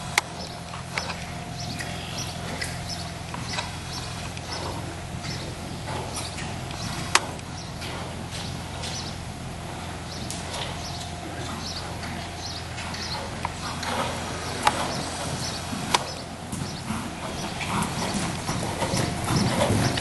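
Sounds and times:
horse hoofbeats trotting on sand: 0.0s - 20.0s
steady low hum: 0.0s - 20.0s.

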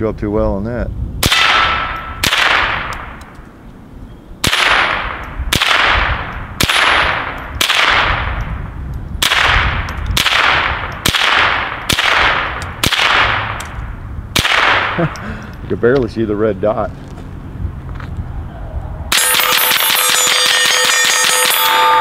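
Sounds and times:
pistol shots with echo: 1.2s - 3.2s, 4.4s - 8.4s, 9.2s - 13.7s, 14.3s - 15.2s, 19.1s - 22.0s.

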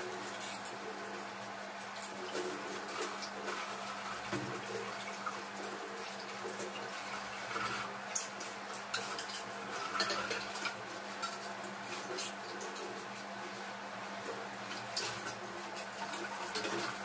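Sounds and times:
tap water running into sink: 0.0s - 13.6s, 14.2s - 17.0s
metal utensils clinking: 8.9s - 10.8s.

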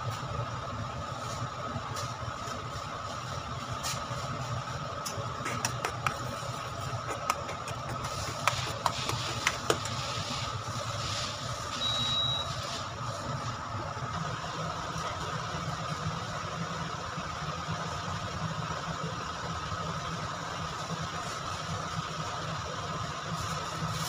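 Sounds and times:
steady background hum: 0.0s - 24.0s.

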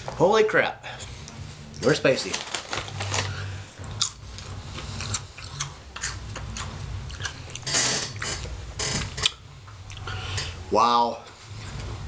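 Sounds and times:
crunchy chips being chewed: 1.2s - 8.5s.

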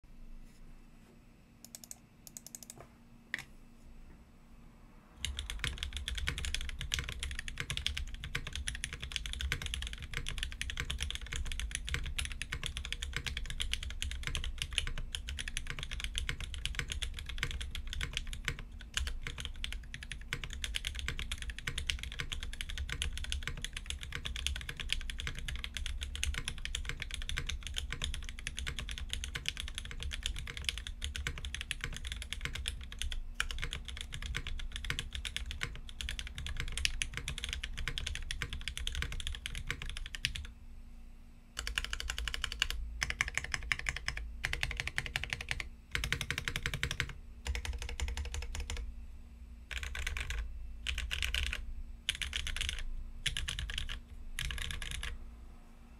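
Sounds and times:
fast mechanical keyboard typing: 1.6s - 2.8s, 5.2s - 40.5s, 41.6s - 48.9s, 49.7s - 55.2s.

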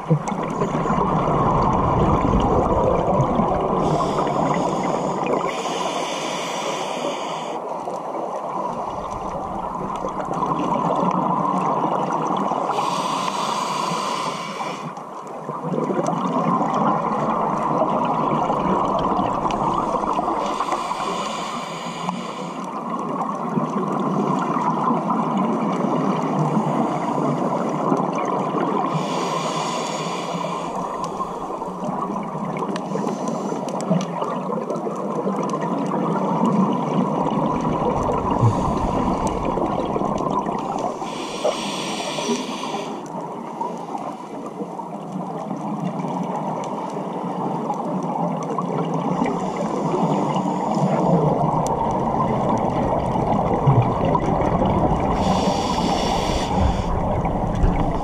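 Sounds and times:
exhaled bubbles rumbling: 0.0s - 5.6s, 8.0s - 12.9s, 15.3s - 21.2s, 30.5s - 41.4s, 47.3s - 58.0s
underwater water noise: 0.0s - 58.0s
scuba regulator hiss: 3.8s - 7.6s, 12.7s - 14.9s, 20.3s - 22.6s, 28.9s - 31.3s, 40.9s - 43.1s, 55.1s - 57.1s.

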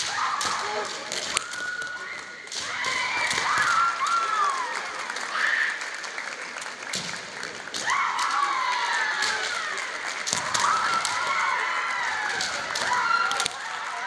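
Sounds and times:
bamboo swords clacking: 0.0s - 3.8s.

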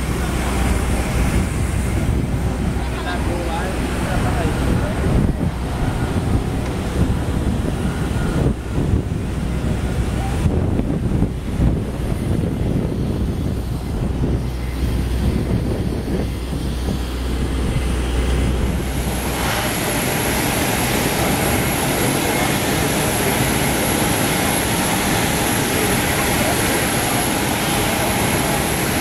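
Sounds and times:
aircraft turbine whine: 0.0s - 29.0s
wind buffeting microphone: 0.0s - 29.0s
loud rushing hiss: 11.3s - 29.0s.

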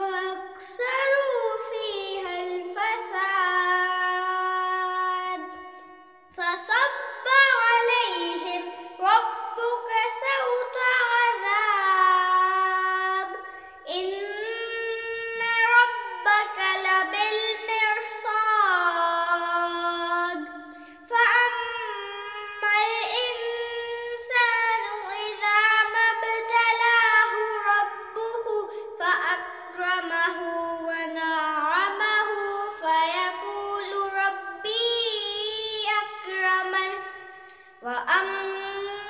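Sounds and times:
boy reciting melodically: 0.0s - 39.0s
boy breathing: 8.7s - 9.0s, 13.4s - 13.9s, 20.6s - 21.1s, 37.0s - 37.8s.

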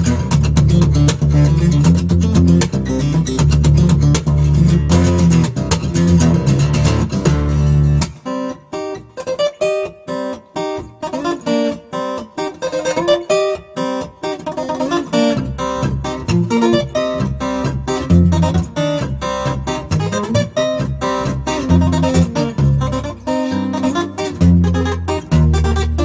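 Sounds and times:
bass line: 0.0s - 8.0s, 15.8s - 23.2s
acoustic guitar music: 0.0s - 26.0s.

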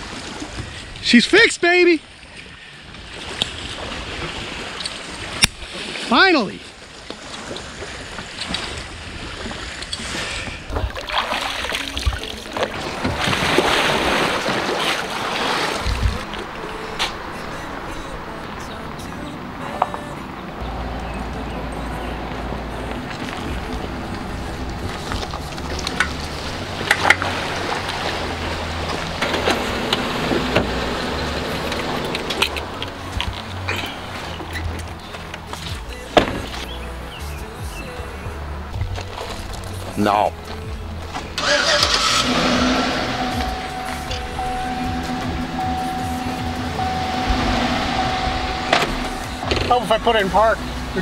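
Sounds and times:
water splashing around wading person: 2.0s - 51.0s
engine idling: 41.4s - 51.0s
low thumps: 42.6s - 50.0s.

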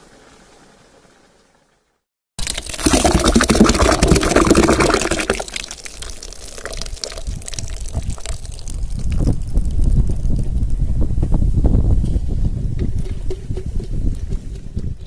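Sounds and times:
juice pouring and splashing: 2.4s - 10.4s
froth popping: 2.4s - 10.6s
wind on microphone: 7.1s - 15.0s.

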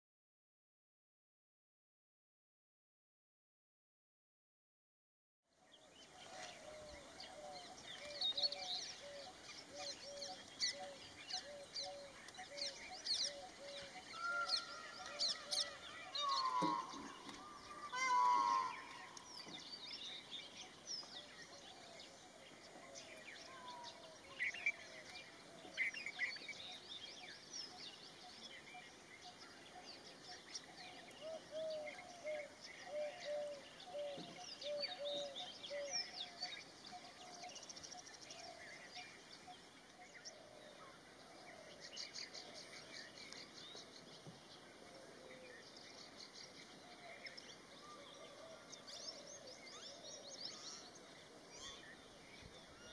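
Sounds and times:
birds chirping and calling: 5.8s - 52.9s
loud honking bird call: 16.2s - 17.1s, 17.9s - 18.9s.

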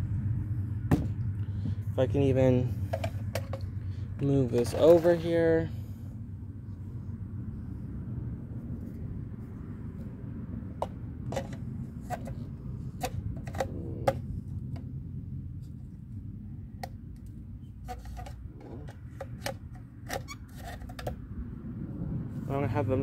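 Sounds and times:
low steady rumble: 0.0s - 23.0s
plastic parts clicking and knocking: 16.8s - 21.2s.

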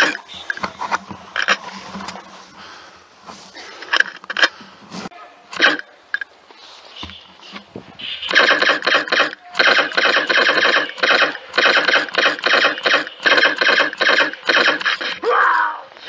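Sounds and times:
laser tag blaster electronic shots: 8.0s - 15.2s.

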